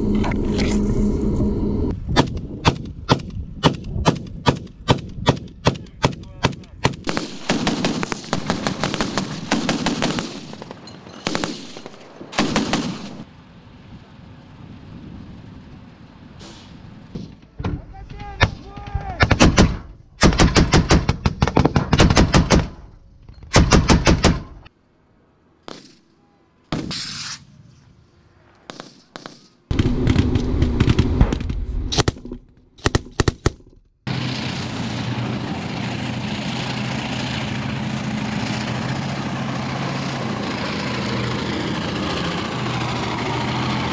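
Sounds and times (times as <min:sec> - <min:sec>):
tank engine running: 0:00.0 - 0:01.9, 0:34.1 - 0:43.9
automatic gunfire bursts: 0:06.0 - 0:13.2.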